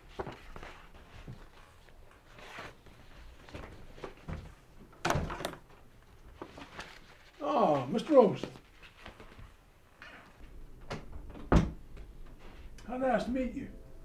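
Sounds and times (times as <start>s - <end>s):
paper pages rustling: 0.0s - 4.6s, 6.0s - 9.6s.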